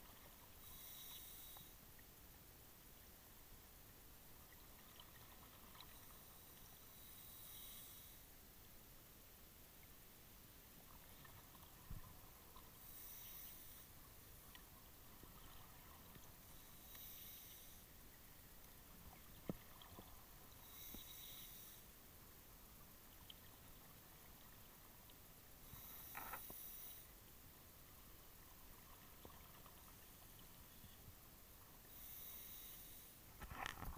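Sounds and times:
scuba breathing through regulator: 12.8s - 13.9s, 31.9s - 33.2s.

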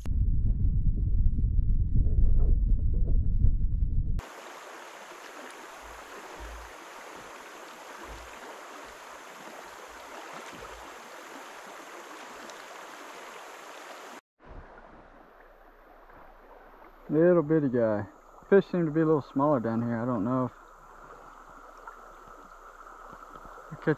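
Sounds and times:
loud low rumble: 0.0s - 4.2s
river water flowing: 4.2s - 23.9s.

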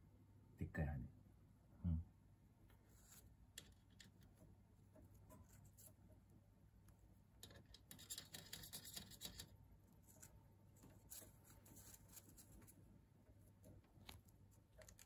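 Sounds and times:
bird claws scratching on wire: 7.4s - 12.8s.

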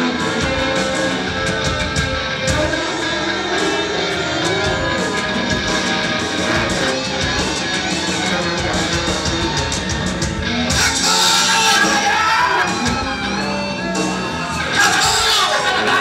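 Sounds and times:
rock band playing: 0.0s - 16.0s
man shouting: 10.7s - 13.0s, 14.6s - 16.0s.

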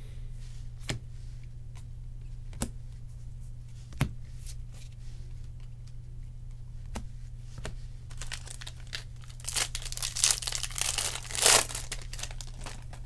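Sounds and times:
foil wrapper tearing and crinkling: 8.1s - 13.0s.

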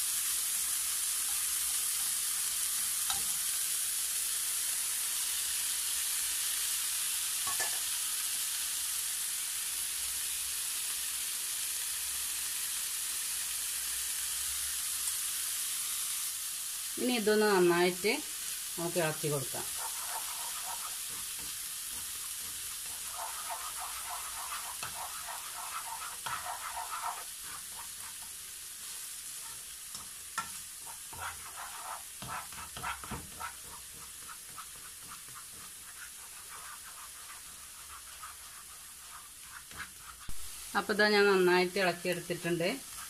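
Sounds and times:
leaves sizzling in a frying pan: 0.0s - 43.0s
plastic spatula scraping and tapping: 19.7s - 28.2s, 29.4s - 40.4s.

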